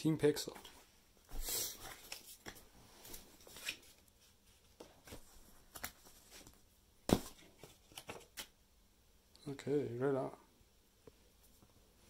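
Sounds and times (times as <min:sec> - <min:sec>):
paper card rustling: 0:07.1 - 0:08.5.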